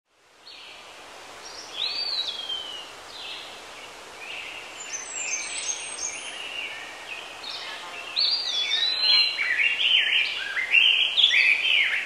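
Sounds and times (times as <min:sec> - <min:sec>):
steady background hiss: 0:00.1 - 0:12.0
bird calls: 0:01.5 - 0:12.0.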